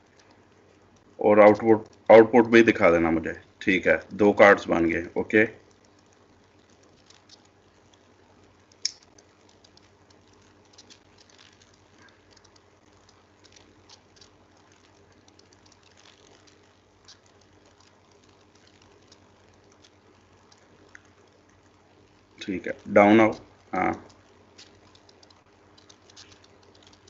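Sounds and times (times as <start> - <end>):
faint low hum: 0.0 - 27.0
keyboard and mouse clicking: 24.0 - 27.0.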